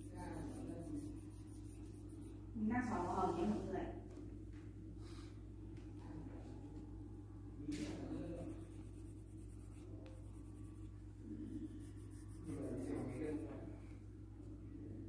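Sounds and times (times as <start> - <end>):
crayon rubbing on paper: 0.0 - 3.6, 8.2 - 13.5
steady low hum: 0.0 - 15.0.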